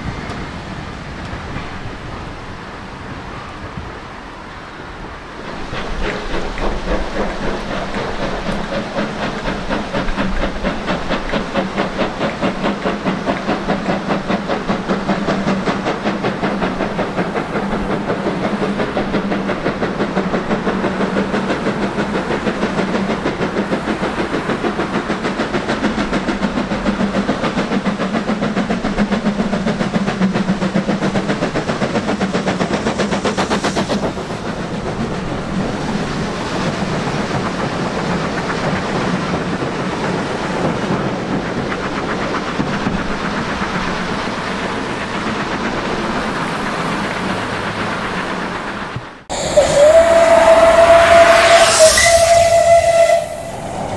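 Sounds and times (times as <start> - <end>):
steam hissing: 0.0 - 53.9
steam locomotive exhaust puffs: 5.0 - 53.9.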